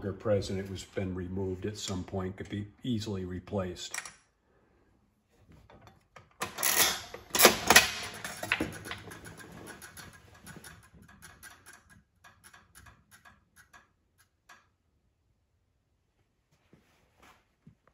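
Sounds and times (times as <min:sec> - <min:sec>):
loud metallic clatter of mechanism: 0:06.4 - 0:13.3
roulette wheel clicking: 0:06.4 - 0:14.8.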